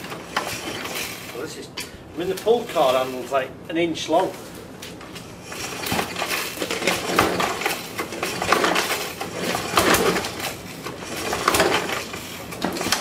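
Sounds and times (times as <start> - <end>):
recoil pull-starter cranking engine: 5.5 - 13.0.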